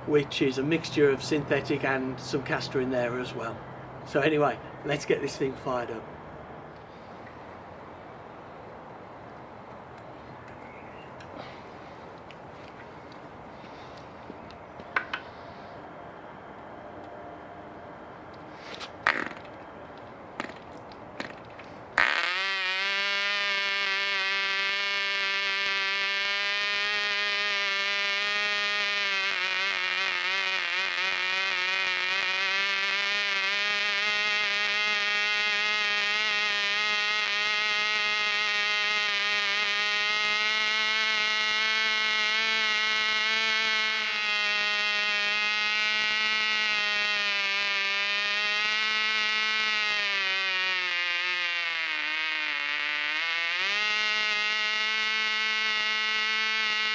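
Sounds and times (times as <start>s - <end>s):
model engine high-pitched buzz: 22.0s - 56.9s.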